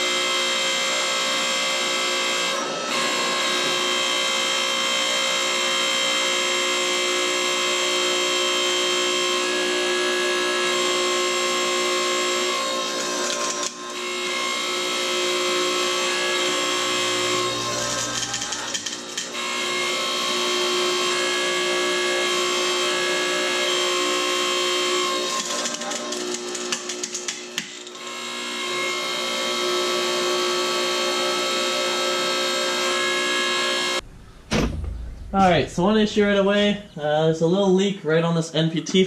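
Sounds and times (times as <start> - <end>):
hydraulic pump whining: 2.6 - 35.3
low hum: 34.0 - 37.1.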